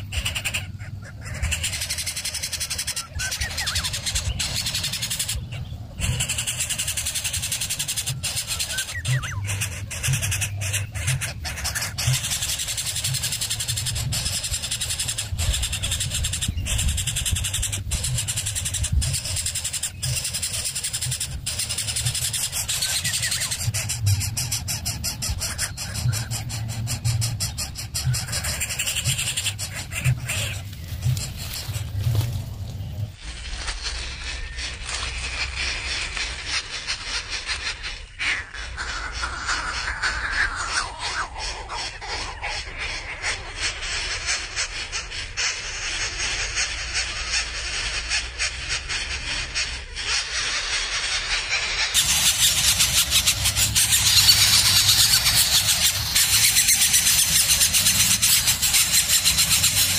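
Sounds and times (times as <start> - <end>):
nestlings begging with rasping calls: 0.0 - 59.9
low rumble: 21.4 - 36.2
nestling hissing begging call: 33.9 - 59.9.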